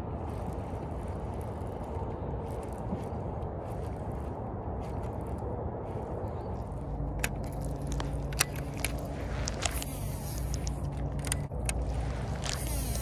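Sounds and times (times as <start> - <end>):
wind rumble on microphone: 0.0 - 13.0
sharp clicks of rod and reel: 7.2 - 13.0
fishing reel whirring: 7.4 - 13.0.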